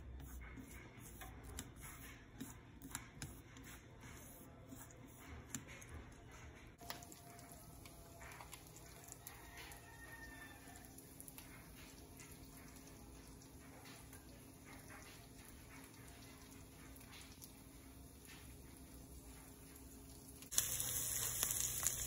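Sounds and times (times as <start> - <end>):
knife spreading butter: 0.1 - 5.9.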